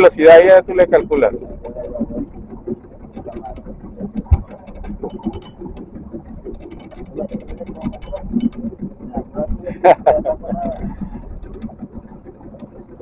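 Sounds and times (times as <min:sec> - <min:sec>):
outboard motor running: 0:00.0 - 0:13.0
wind noise: 0:00.0 - 0:13.0.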